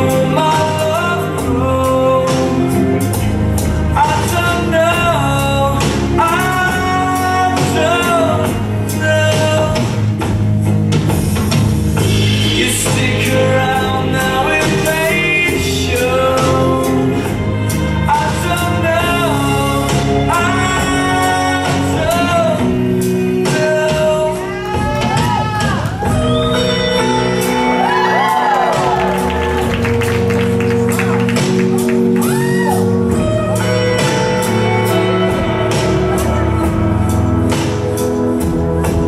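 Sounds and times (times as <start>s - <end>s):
bolero with singer: 0.0s - 10.3s, 12.1s - 29.6s.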